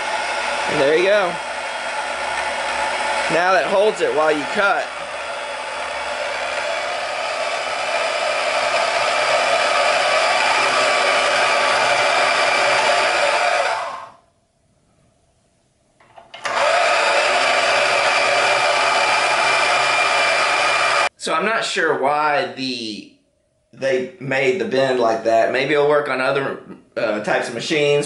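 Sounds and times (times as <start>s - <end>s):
band saw motor whine: 0.0s - 14.1s, 16.4s - 21.1s.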